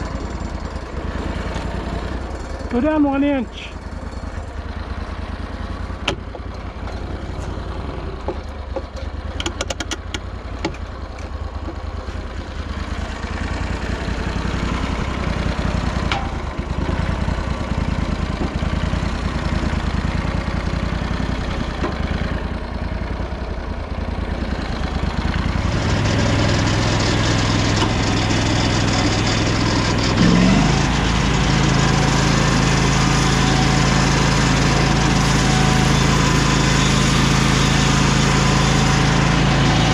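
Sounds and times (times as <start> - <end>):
sawmill engine running: 0.0 - 39.9.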